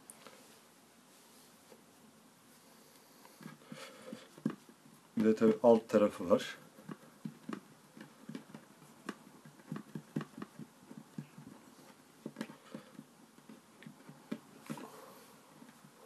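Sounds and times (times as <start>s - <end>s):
fingers patting play dough on wood: 3.2s - 16.0s.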